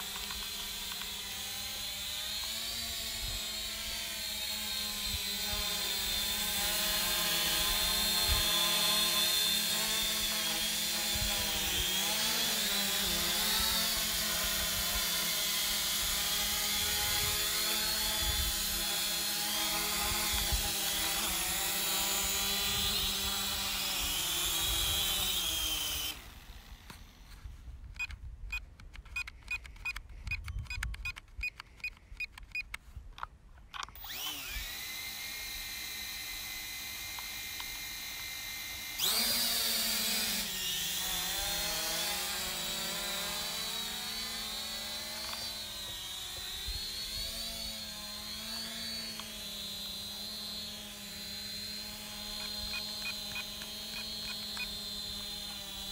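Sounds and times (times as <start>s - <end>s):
drone motors whining: 0.0s - 28.2s, 33.7s - 55.9s
clicking: 52.4s - 55.6s.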